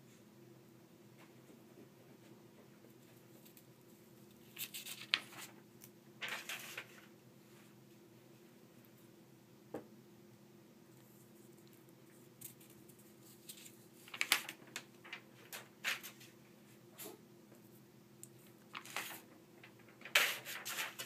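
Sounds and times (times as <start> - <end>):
faint steady hum: 0.0 - 21.0
paper rustling and crinkling: 4.4 - 5.6, 6.2 - 7.1, 12.4 - 16.4, 18.4 - 21.0.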